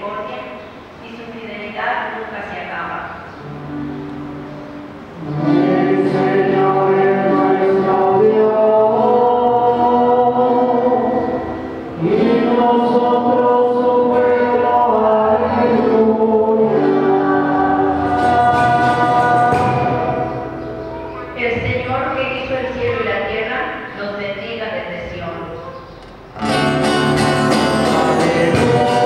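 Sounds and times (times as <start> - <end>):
voices singing a slow hymn: 4.4 - 20.9, 27.5 - 29.0.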